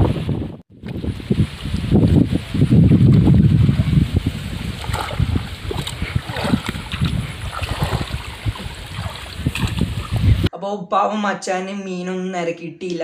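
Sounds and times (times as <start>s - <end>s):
water splashing from wading: 0.8s - 10.5s.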